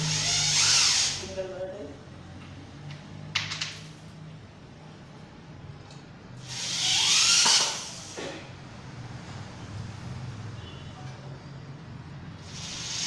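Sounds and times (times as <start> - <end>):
electric drill whirring: 0.0 - 1.3, 6.4 - 8.2, 12.4 - 13.0.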